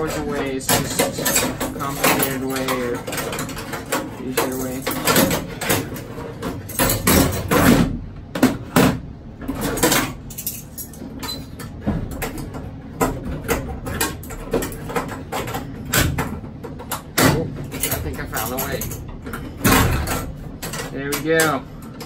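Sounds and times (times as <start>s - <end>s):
metal hardware clinking: 9.6s - 12.4s, 17.0s - 21.7s.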